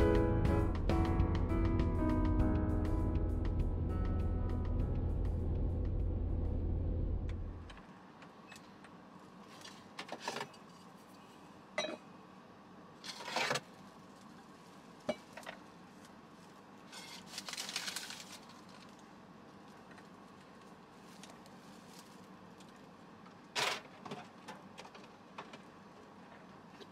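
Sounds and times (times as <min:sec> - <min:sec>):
faint steady fridge hum: 0:07.5 - 0:26.9
glass and plastic bottles clinking: 0:11.8 - 0:12.0.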